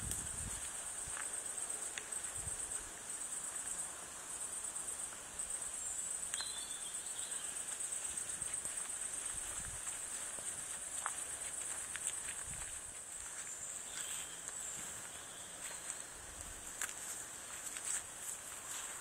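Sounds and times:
crickets chirping: 0:00.0 - 0:19.0.

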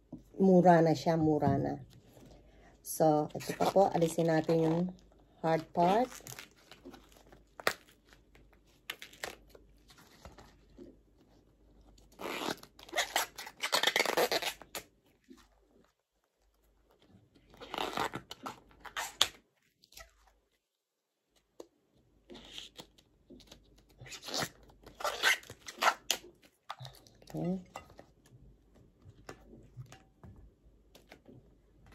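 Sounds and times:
crunching and tearing bracts: 0:06.0 - 0:10.5.

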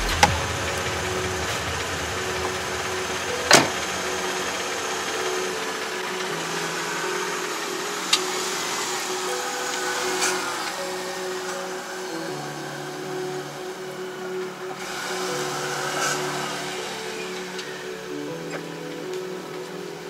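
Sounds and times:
car engine running: 0:00.0 - 0:10.6.

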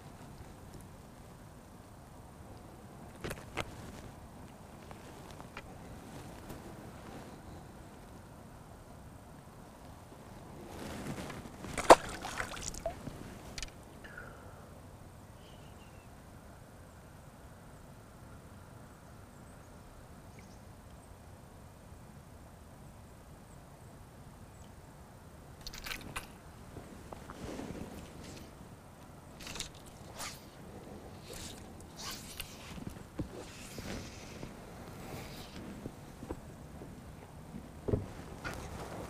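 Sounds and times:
water splashing: 0:11.7 - 0:13.2.

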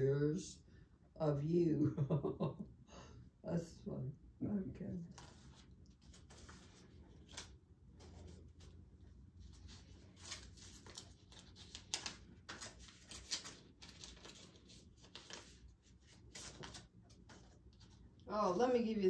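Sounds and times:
paper rustling: 0:05.1 - 0:18.2.

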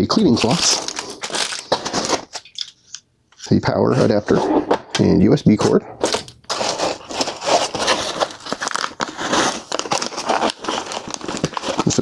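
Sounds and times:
foam packing crinkling: 0:00.0 - 0:02.6, 0:06.0 - 0:12.0.

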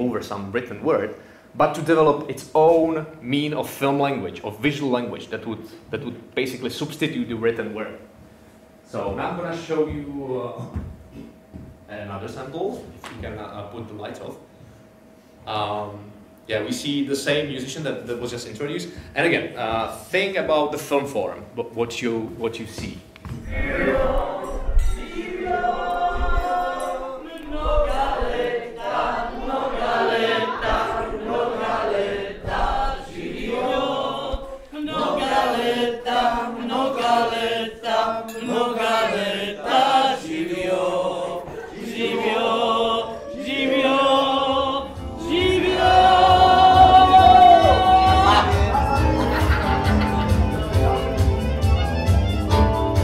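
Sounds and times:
group of people singing: 0:23.4 - 0:51.3.

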